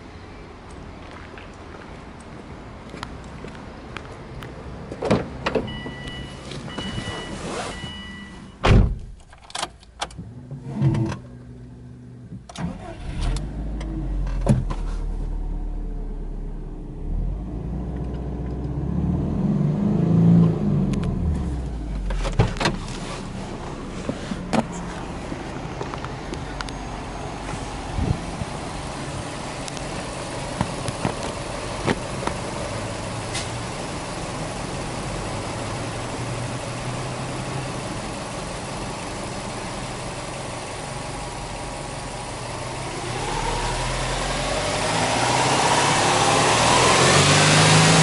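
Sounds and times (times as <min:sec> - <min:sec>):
car engine starting and idling: 0:02.2 - 0:48.0
warning chime beeps: 0:05.7 - 0:08.6.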